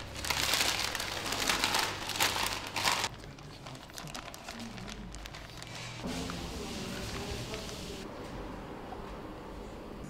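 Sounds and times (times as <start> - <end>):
plastic bag crinkling: 0.0 - 6.0.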